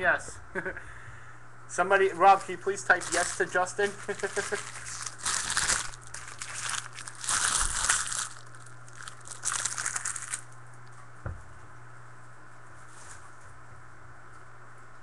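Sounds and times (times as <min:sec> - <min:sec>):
foil wrapper crinkling: 0:02.0 - 0:10.6.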